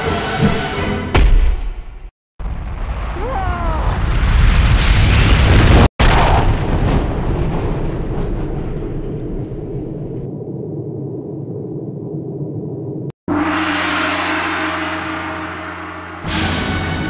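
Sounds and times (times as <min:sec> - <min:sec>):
explosion blast: 0:02.4 - 0:10.3
low rumble: 0:04.1 - 0:17.0.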